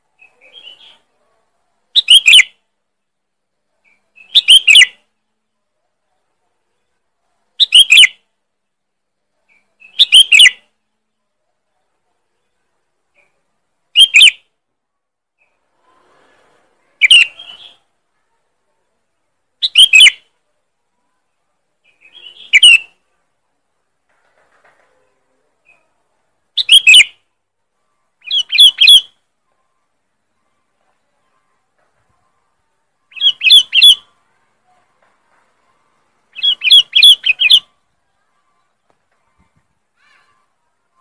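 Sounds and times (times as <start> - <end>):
bird calling sharp phrases: 0.2 - 1.1, 1.9 - 2.6, 3.8 - 5.1, 7.6 - 8.2, 9.5 - 10.7, 13.1 - 14.5, 17.0 - 18.0, 19.6 - 20.3, 21.8 - 23.0, 25.6 - 27.2, 27.9 - 29.2, 33.0 - 34.8, 36.3 - 41.0
bird calling whistled notes: 4.2 - 4.9, 9.8 - 10.6, 17.0 - 17.8, 19.6 - 20.2, 22.1 - 23.0, 26.6 - 27.2, 28.2 - 29.1, 33.1 - 34.0, 36.4 - 37.7.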